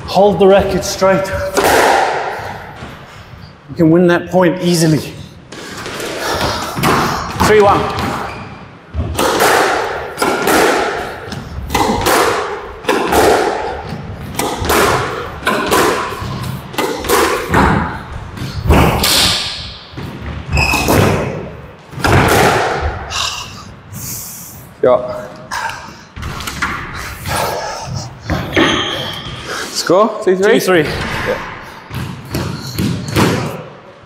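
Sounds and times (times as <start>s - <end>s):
squash ball hitting rackets and walls: 0.0s - 3.2s, 5.5s - 23.1s, 26.1s - 27.6s, 28.2s - 29.5s, 30.8s - 33.8s.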